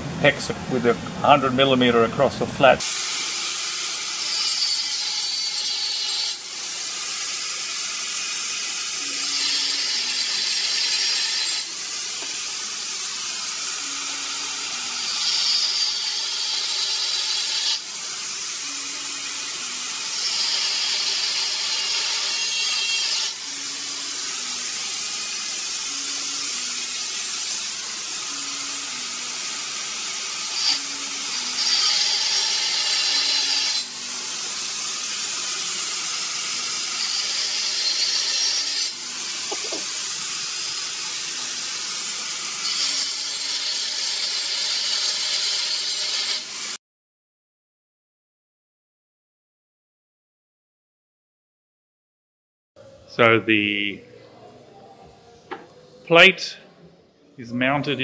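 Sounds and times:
angle grinder cutting steel: 2.8s - 46.8s.

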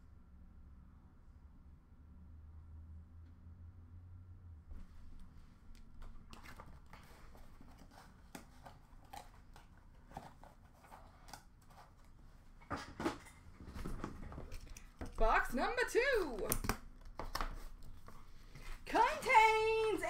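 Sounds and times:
cards and boxes clicking: 16.1s - 18.2s.

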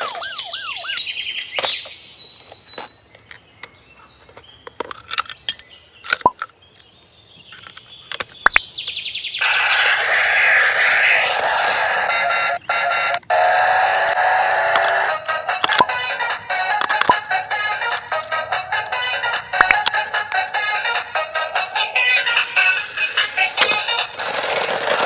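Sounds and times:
plastic toy clicks and knocks: 4.3s - 6.9s, 7.5s - 8.6s, 14.0s - 16.0s, 16.6s - 20.6s, 22.4s - 25.0s.

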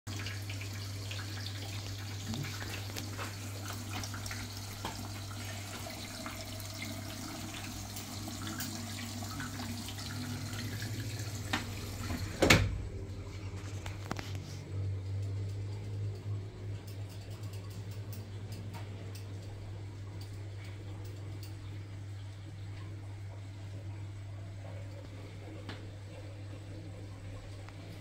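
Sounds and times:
water filling washing machine: 0.1s - 28.0s.

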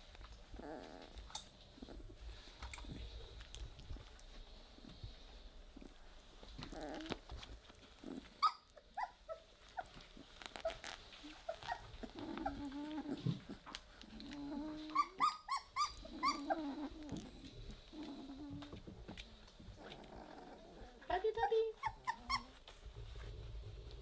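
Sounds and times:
puppies growling: 0.0s - 24.0s
puppies squeaking and yipping: 8.3s - 13.8s, 14.5s - 17.6s, 21.4s - 22.7s.

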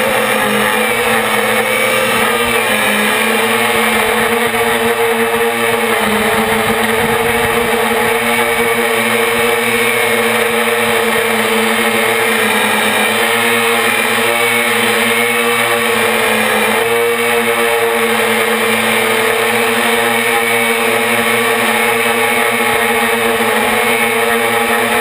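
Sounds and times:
quadcopter propellers whining: 0.0s - 25.0s.

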